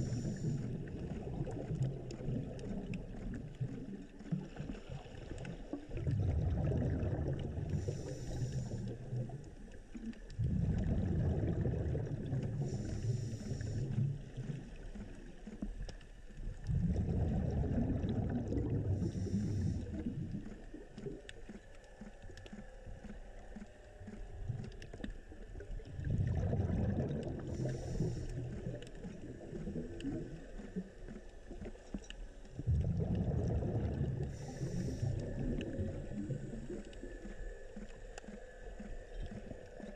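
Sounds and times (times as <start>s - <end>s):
regulator inhale hiss: 0.0s - 1.0s, 7.7s - 9.2s, 12.5s - 14.3s, 19.0s - 20.2s, 27.5s - 28.8s, 34.2s - 37.7s
exhaled bubbles rushing: 0.0s - 39.9s.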